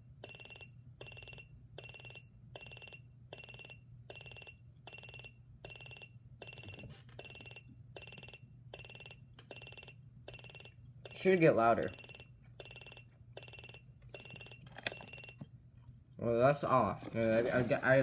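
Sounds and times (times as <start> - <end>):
alarm clock beeping: 0.2 - 15.4.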